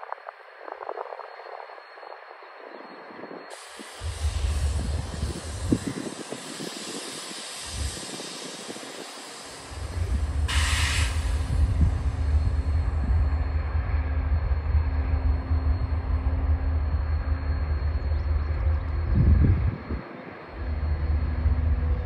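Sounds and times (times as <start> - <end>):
diesel locomotive engines rumbling: 0.4 - 22.0
air hiss: 3.5 - 12.9.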